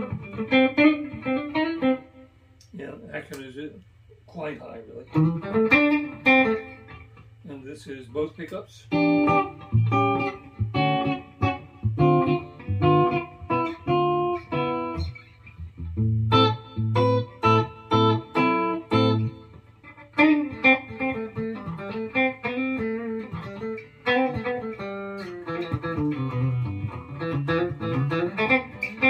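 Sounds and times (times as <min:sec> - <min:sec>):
clean electric guitar: 0:00.0 - 0:03.5, 0:05.0 - 0:07.5, 0:08.6 - 0:29.0.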